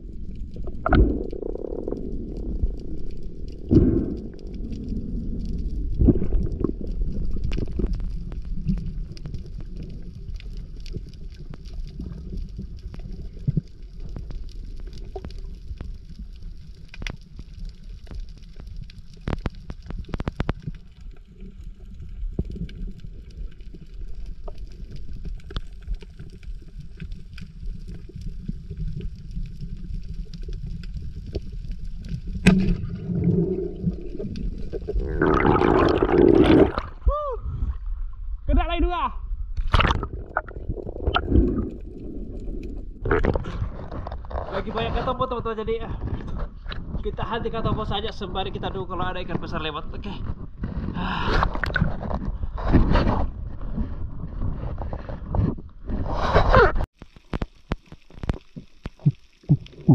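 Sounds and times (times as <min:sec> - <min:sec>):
underwater low rumble: 0:00.0 - 0:59.9
underwater clicks and snaps: 0:00.2 - 0:37.0, 0:39.6 - 0:44.5, 0:50.3 - 0:53.2, 0:56.6 - 0:59.9
water splash: 0:32.4 - 0:37.0, 0:39.6 - 0:41.9.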